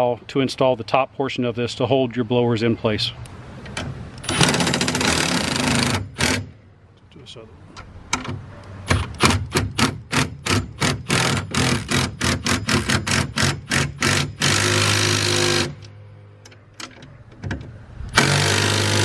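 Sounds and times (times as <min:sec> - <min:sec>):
impact driver hammering: 0:04.2 - 0:06.5, 0:08.8 - 0:15.8, 0:18.2 - 0:19.0.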